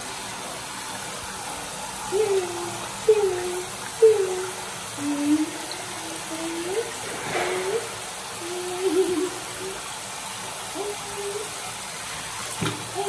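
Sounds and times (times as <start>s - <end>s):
shower spraying into plastic basin: 6.2s - 13.0s.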